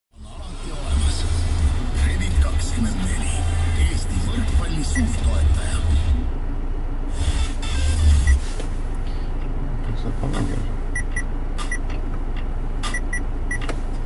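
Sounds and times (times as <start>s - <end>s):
vehicle engine idling: 0.2s - 14.0s
high touchscreen beeps: 11.0s - 11.8s, 12.9s - 13.6s.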